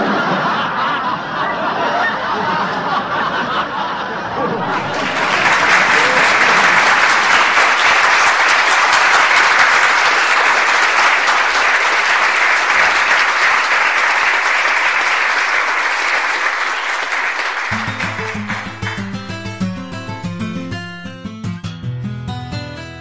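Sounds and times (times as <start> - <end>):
audience applause: 4.3 - 21.0
guitar playing: 17.7 - 23.0.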